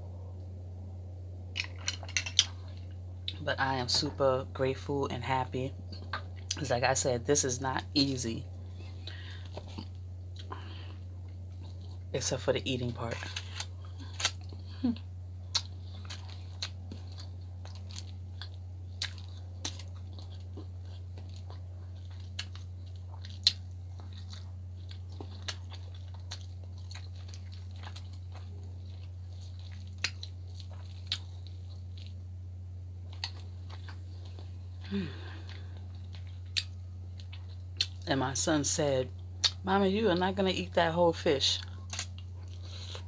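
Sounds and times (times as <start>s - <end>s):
steady low hum: 0.0s - 43.0s
chewing with clicks and smacks: 1.5s - 3.4s, 5.9s - 6.6s, 8.7s - 12.1s, 13.1s - 32.2s, 33.0s - 38.1s, 39.4s - 39.6s, 41.6s - 43.0s
person humming: 34.9s - 35.5s.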